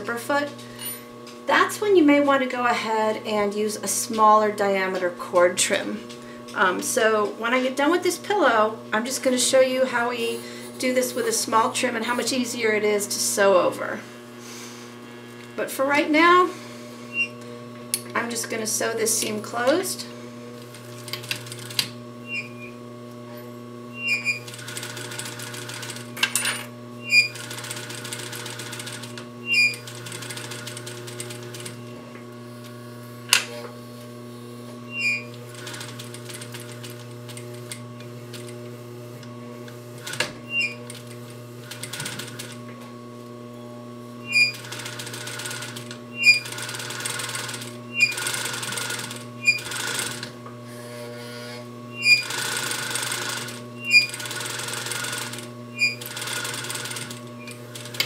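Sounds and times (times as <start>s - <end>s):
motor hum: 0.0s - 58.0s
sewing machine stitching: 20.7s - 22.7s, 24.0s - 31.8s, 35.0s - 38.6s, 40.0s - 42.6s, 44.3s - 50.4s, 51.0s - 58.0s.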